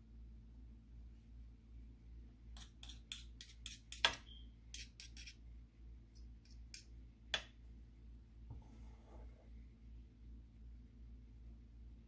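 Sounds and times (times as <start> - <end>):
metal spoons clicking and scraping: 2.6 - 5.4.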